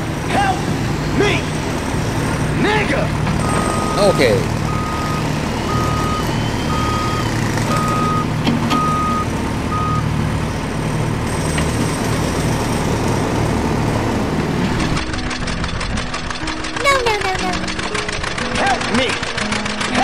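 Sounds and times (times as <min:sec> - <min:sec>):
truck engine running: 0:00.0 - 0:20.0
reversing alarm beeping: 0:00.2 - 0:10.1.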